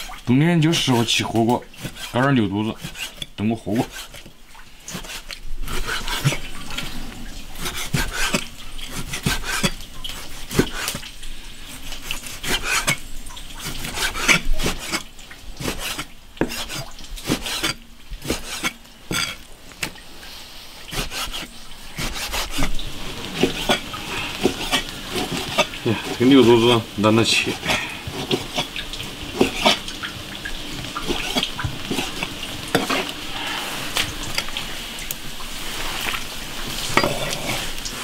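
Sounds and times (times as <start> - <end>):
blade scraping: 1.8 - 4.3, 4.9 - 7.0, 7.6 - 11.0, 11.8 - 13.0, 13.6 - 19.4, 20.9 - 29.8, 31.0 - 34.5.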